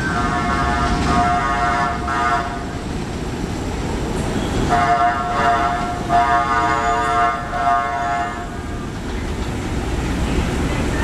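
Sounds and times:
subway train rumbling: 0.0 - 11.0.

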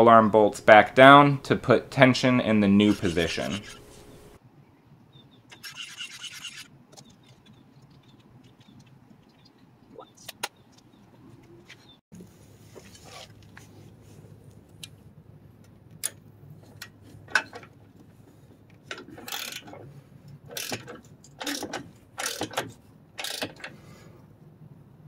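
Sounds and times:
ratchet wrench clicking: 19.2 - 19.6, 20.5 - 22.6, 23.2 - 23.7.

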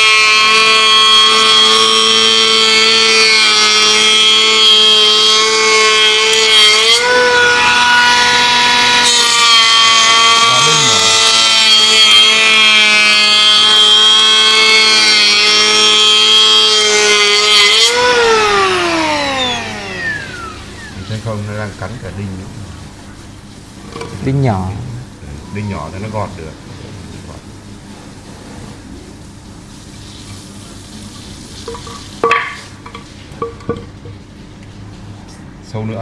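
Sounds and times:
electric planer whining: 0.0 - 22.2.

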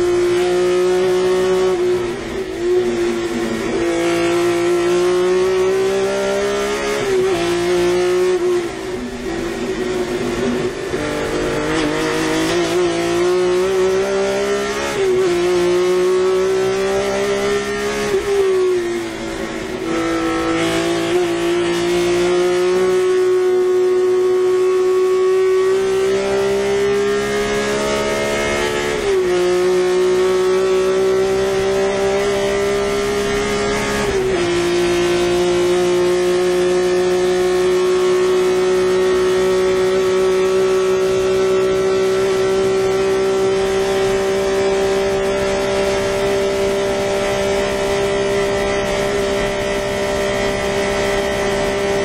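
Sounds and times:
race car engine at full throttle: 0.0 - 52.0.

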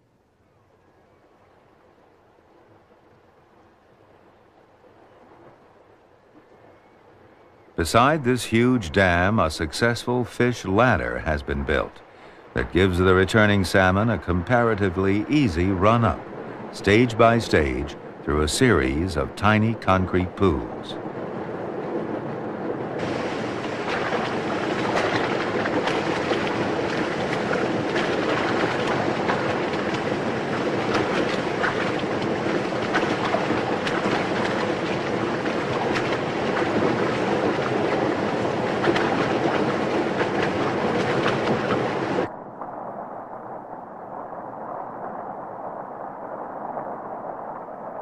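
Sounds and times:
water rushing down concrete pools: 7.8 - 42.6.

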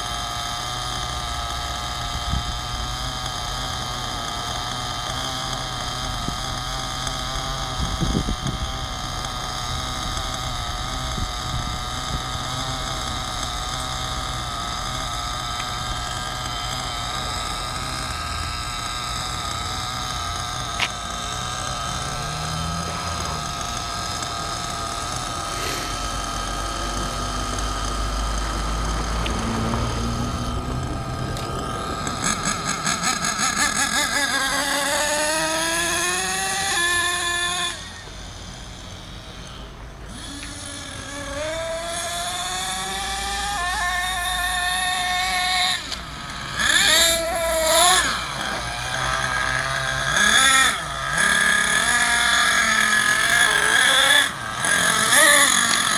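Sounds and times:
toy truck nitro engine revving: 0.0 - 55.9.

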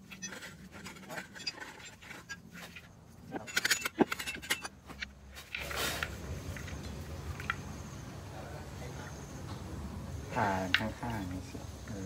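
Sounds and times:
rasping scrape: 0.0 - 4.7.

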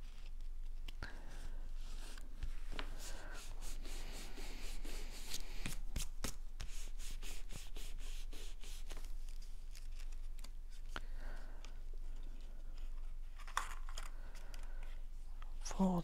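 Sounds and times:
paper rubbing and rustling: 1.8 - 11.0.

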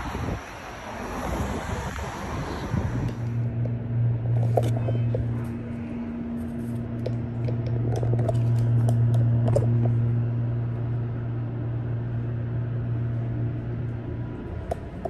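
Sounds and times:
elevator hum: 0.0 - 15.0
phone handling rustle and clicks: 4.3 - 5.6.

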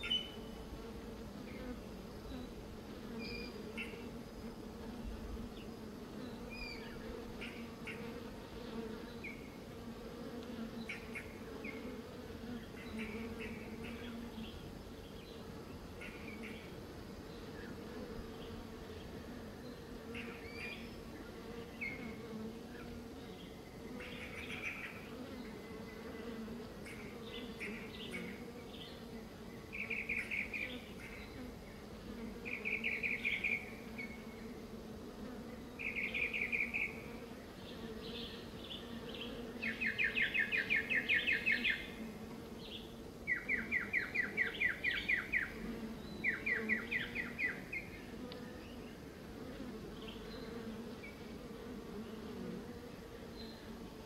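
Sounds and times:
songbird singing trills: 0.0 - 0.6, 3.2 - 4.1, 5.5 - 8.1, 10.8 - 15.4, 23.1 - 31.5, 32.4 - 34.5, 35.7 - 42.0, 42.6 - 49.0
bees buzzing: 0.0 - 54.0.

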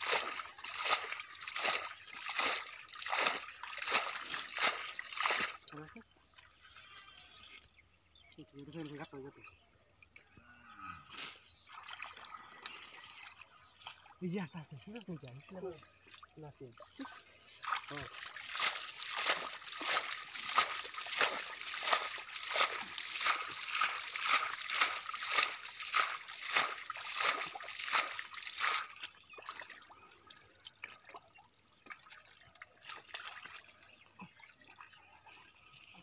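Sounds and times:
hands splashing in water: 0.0 - 5.8, 17.0 - 33.9
water sloshing: 0.0 - 7.8, 11.6 - 36.0.

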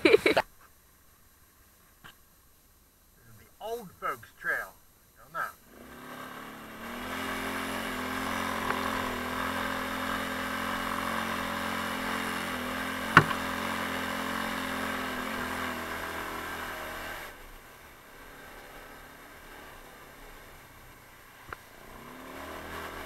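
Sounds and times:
atv engine running: 5.3 - 23.0
sharp knock: 13.1 - 13.5.

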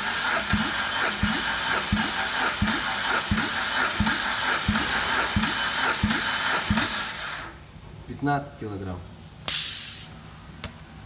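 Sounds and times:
engine cranking on starter: 0.0 - 7.6.

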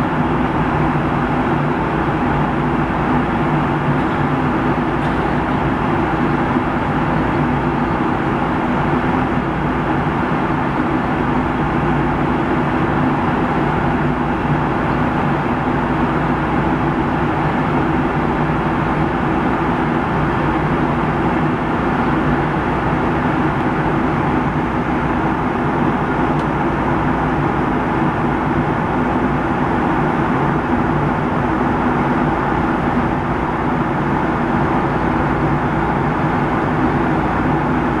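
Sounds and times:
airplane cabin airflow and engine noise: 0.0 - 38.0.

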